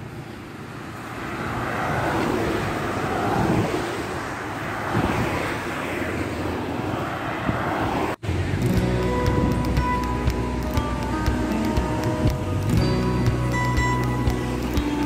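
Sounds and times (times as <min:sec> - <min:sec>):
cars passing on a road: 0:00.0 - 0:15.0
music: 0:08.7 - 0:15.0.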